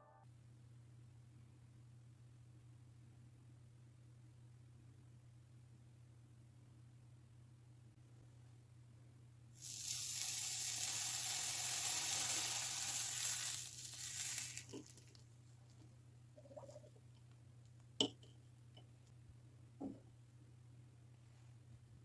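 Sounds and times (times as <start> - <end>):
soft knock: 19.8 - 20.1.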